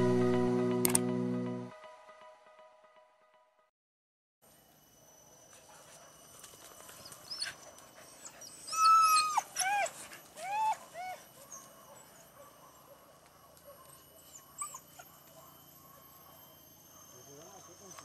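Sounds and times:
dogs whining: 6.8s - 16.5s.

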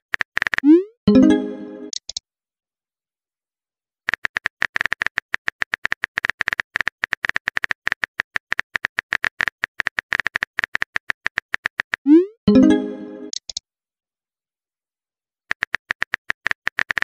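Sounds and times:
phone keyboard typing clicks: 4.1s - 12.0s, 13.3s - 13.6s, 15.5s - 17.0s.

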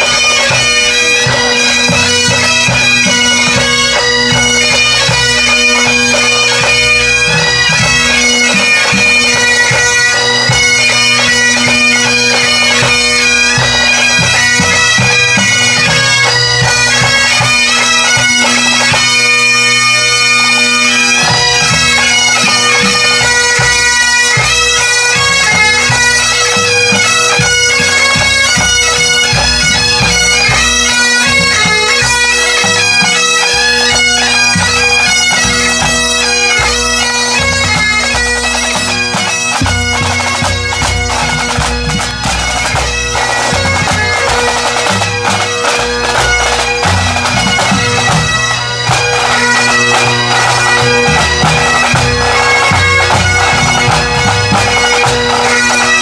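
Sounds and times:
bagpipes playing a tune: 0.0s - 56.0s.

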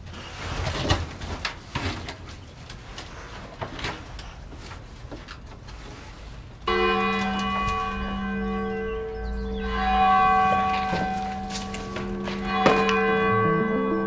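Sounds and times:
bell-like ringing chord: 6.7s - 14.0s.

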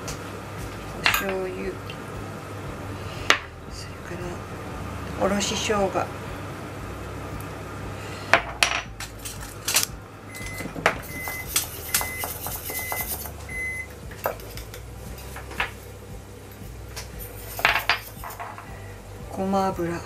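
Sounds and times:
spoon and whisk clinking in metal bowl: 11.1s - 13.4s.

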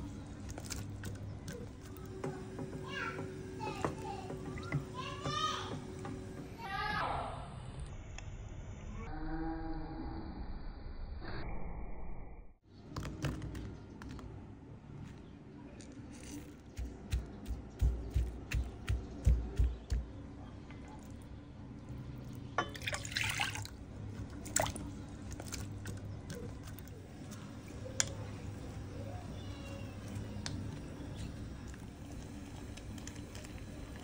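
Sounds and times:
liquid splashing: 22.6s - 26.9s.

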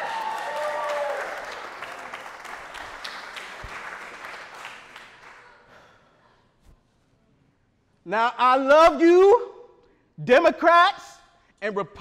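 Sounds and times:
cheers: 0.0s - 2.5s
audience applauding: 0.0s - 5.7s.

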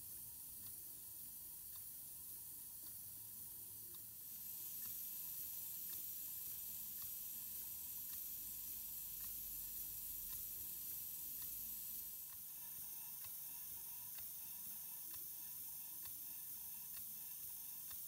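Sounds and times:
faint regular tick: 0.6s - 0.8s, 1.6s - 3.1s, 3.9s - 4.1s, 8.0s - 8.3s, 12.3s - 12.6s, 14.1s - 14.4s, 16.0s - 18.0s.

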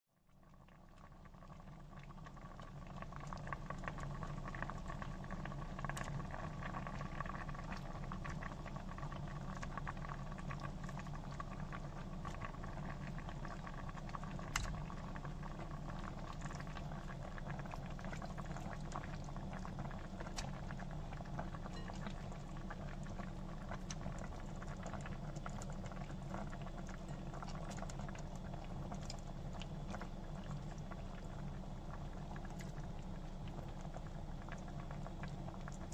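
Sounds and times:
broth bubbling and popping: 0.2s - 35.9s
low hum: 2.9s - 35.9s.

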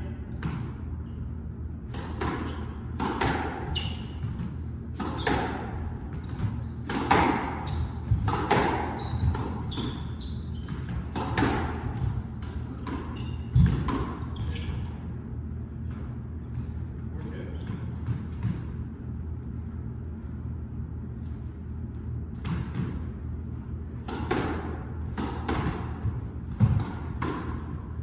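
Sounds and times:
squash ball hitting racquets and walls: 0.3s - 19.1s, 21.2s - 28.0s
shoes squeaking on wooden floor: 8.9s - 11.1s, 14.2s - 14.9s.

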